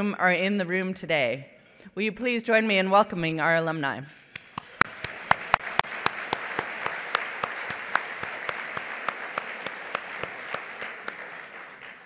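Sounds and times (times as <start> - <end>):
one person's loud sharp claps: 4.3 - 12.0
audience applauding: 4.4 - 12.0.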